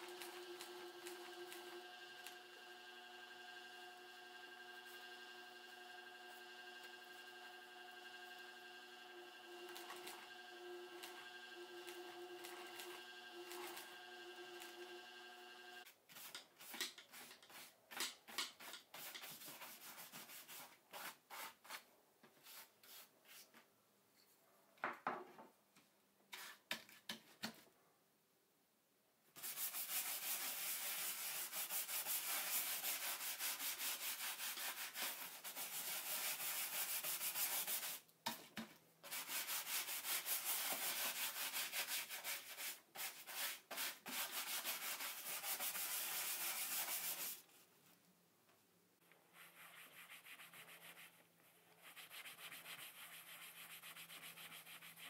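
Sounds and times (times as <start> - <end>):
brush scrubbing leather: 29.4 - 38.0, 39.1 - 47.4.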